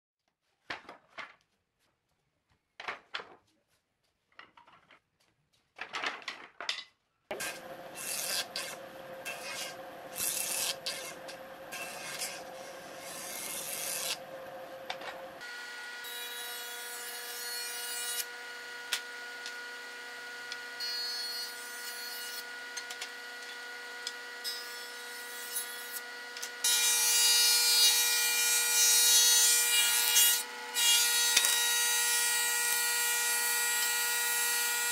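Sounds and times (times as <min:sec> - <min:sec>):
wooden boards clattering: 0:05.8 - 0:07.0
cutter shaving boards: 0:07.3 - 0:34.9.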